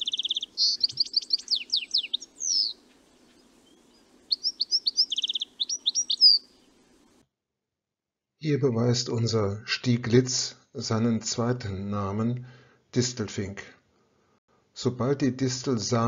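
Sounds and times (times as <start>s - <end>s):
finch twittering flight calls: 0.0s - 7.1s.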